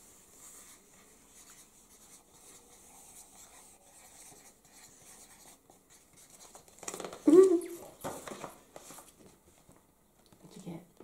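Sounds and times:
markers scratching on paper: 0.4 - 6.6.

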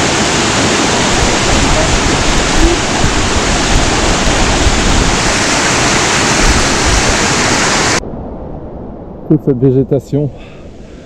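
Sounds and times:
waterfall rushing: 0.0 - 8.0.

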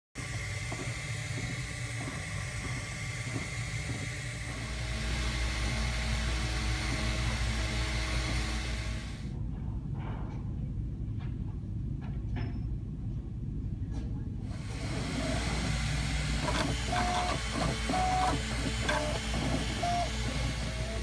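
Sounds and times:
stepper motors whirring: 0.2 - 9.3, 14.5 - 21.0.

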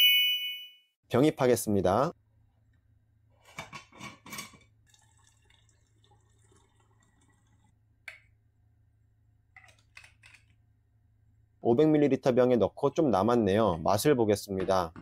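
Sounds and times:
wine pouring through funnel: 4.7 - 7.8.

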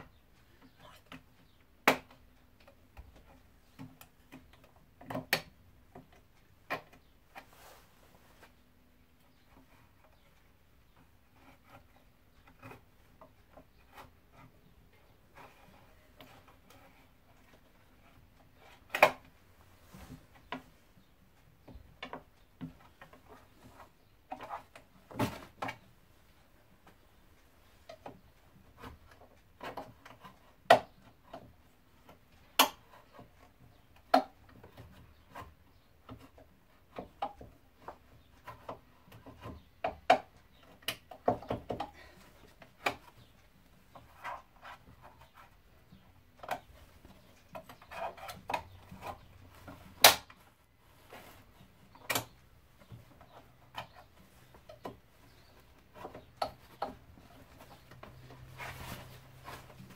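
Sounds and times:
rustling and handling noises: 0.0 - 59.9
sharp clicks and knocks: 51.8 - 58.5.

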